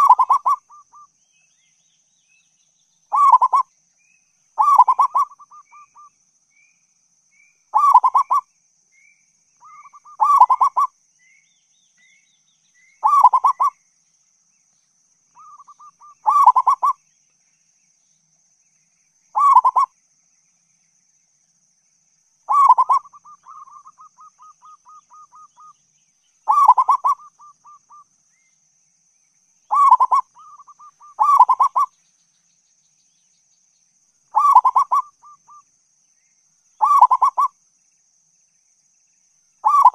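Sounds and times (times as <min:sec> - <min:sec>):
dove cooing: 0:00.0 - 0:00.8, 0:03.1 - 0:03.6, 0:04.6 - 0:06.1, 0:07.8 - 0:08.4, 0:09.6 - 0:10.9, 0:13.0 - 0:13.8, 0:15.4 - 0:17.0, 0:19.4 - 0:19.9, 0:22.5 - 0:25.7, 0:26.5 - 0:28.0, 0:29.7 - 0:31.9, 0:34.3 - 0:35.6, 0:36.8 - 0:37.5, 0:39.6 - 0:39.9.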